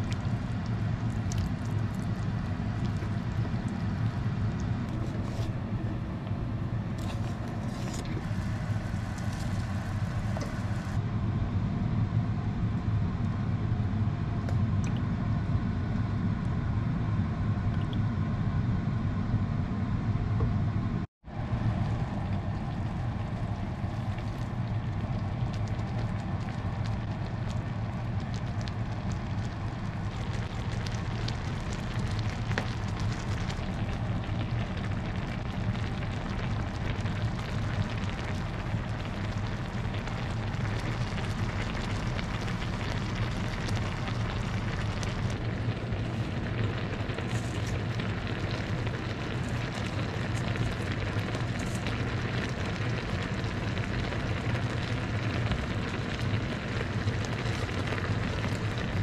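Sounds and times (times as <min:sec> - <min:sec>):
broth bubbling in a frying pan: 0:00.0 - 0:11.0, 0:21.2 - 0:59.0
low hum: 0:00.0 - 0:58.8.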